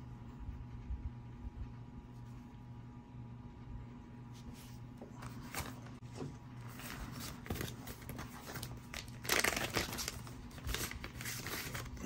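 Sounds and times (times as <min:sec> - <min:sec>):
plastic bag crinkle: 0:06.7 - 0:12.0
plastic bags clicking and rustling: 0:06.8 - 0:12.0.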